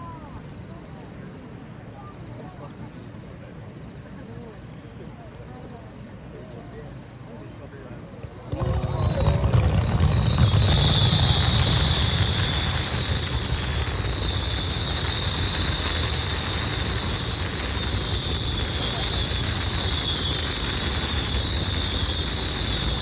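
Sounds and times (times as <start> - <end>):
steady high hiss: 6.0 - 23.0
fireworks booming: 8.2 - 23.0.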